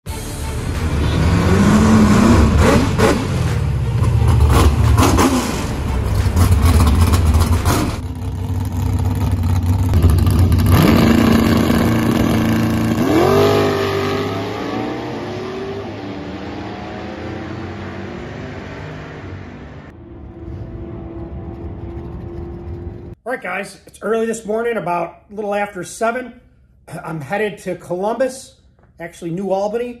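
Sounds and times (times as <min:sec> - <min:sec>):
car engine revving: 0:00.5 - 0:23.2.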